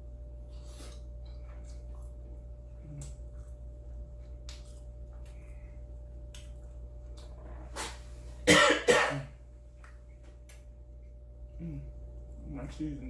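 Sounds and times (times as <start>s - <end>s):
wet chewing smacks: 0.7s - 7.9s.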